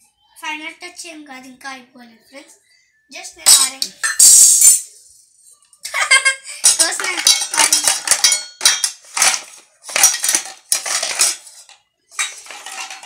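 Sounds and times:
metal spoon scraping steel pot: 0:06.6 - 0:13.0.

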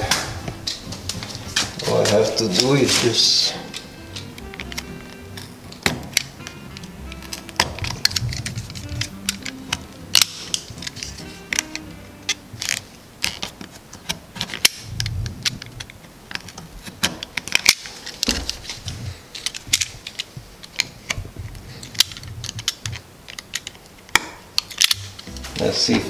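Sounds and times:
knife scraping wood: 0:01.2 - 0:14.7.

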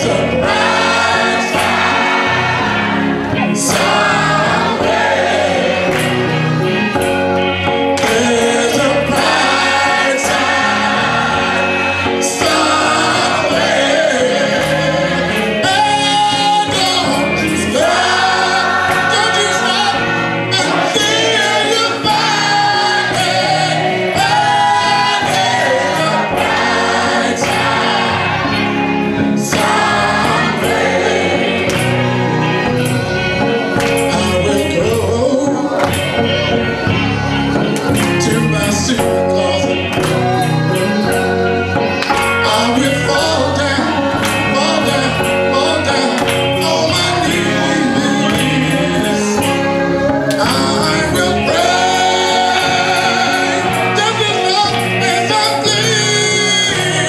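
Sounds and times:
gospel choir singing: 0:00.0 - 0:57.0
steady accompaniment beat: 0:00.0 - 0:57.0
man and woman leading vocals: 0:07.9 - 0:28.6, 0:32.5 - 0:36.9, 0:37.8 - 0:57.0.

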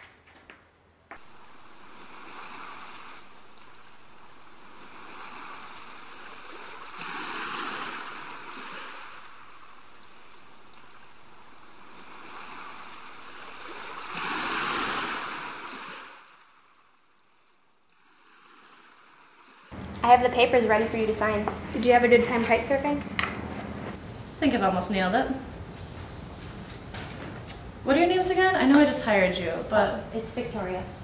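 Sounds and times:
waves washing onto a beach: 0:01.2 - 0:16.3.

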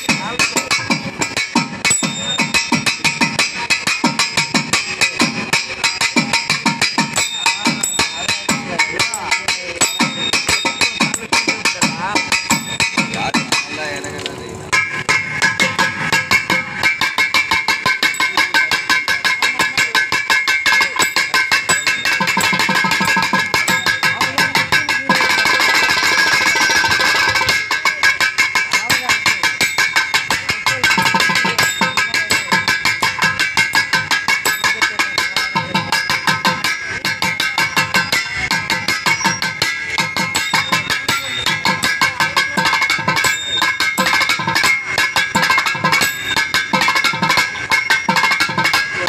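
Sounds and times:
rapid hand drum strokes: 0:00.0 - 0:49.0.

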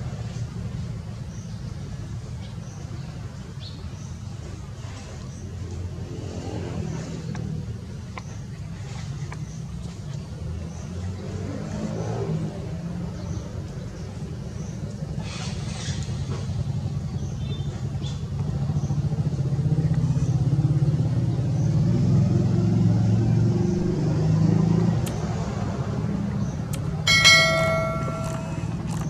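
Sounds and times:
vehicle engine rumbling: 0:23.4 - 0:29.0
bright ringing tone: 0:27.1 - 0:29.0.

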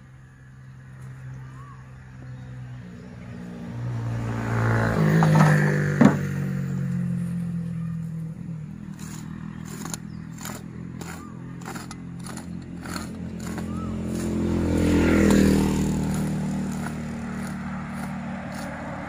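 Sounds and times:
small engine running: 0:07.7 - 0:19.0.

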